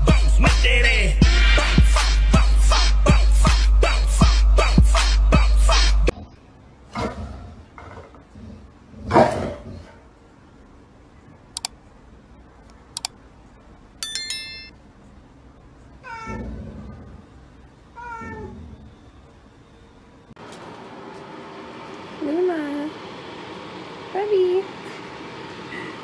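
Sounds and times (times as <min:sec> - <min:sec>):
bright ringing tone: 0:14.0 - 0:14.8
cat meowing: 0:16.0 - 0:16.5, 0:18.0 - 0:18.6.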